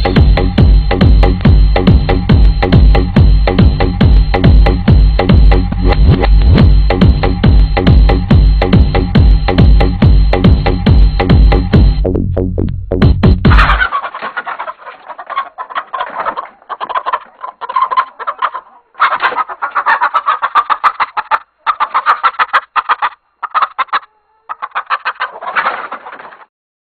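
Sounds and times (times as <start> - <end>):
cartoon chicken clucking: 13.4 - 26.5.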